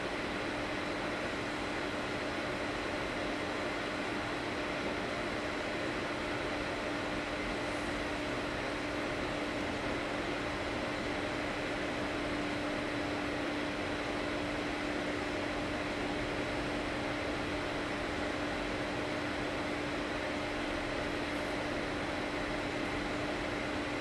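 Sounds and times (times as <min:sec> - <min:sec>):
equipment hum: 0:00.0 - 0:24.0.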